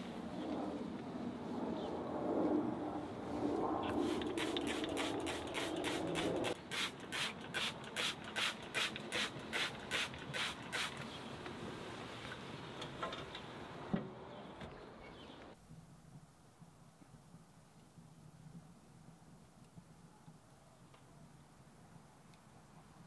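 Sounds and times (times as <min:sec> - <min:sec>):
trigger spray bottle spritzing: 0:04.1 - 0:11.0.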